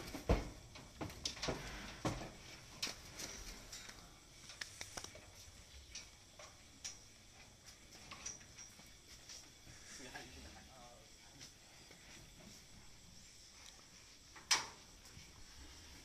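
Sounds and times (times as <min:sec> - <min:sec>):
cattle hooves on wooden floor: 0:00.0 - 0:03.3.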